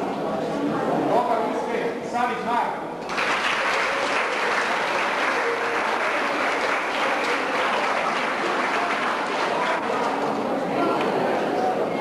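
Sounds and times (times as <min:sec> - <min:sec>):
audience applauding: 0:03.0 - 0:10.6.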